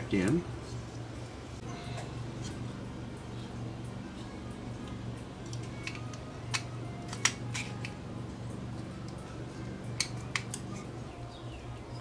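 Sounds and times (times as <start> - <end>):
steady low hum: 0.0 - 12.0
plastic parts clicking: 5.4 - 8.0.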